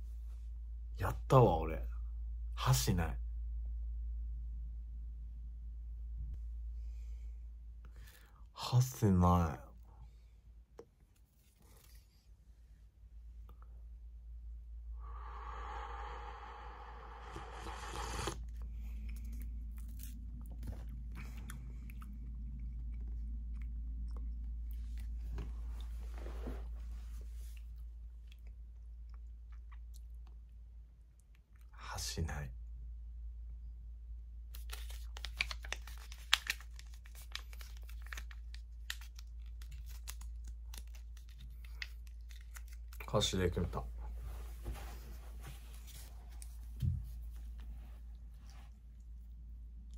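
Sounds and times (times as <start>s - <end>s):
person slurping broth: 15.2s - 18.5s
person chewing noodles: 17.2s - 25.2s
plastic packaging crinkling and tearing: 34.6s - 43.1s.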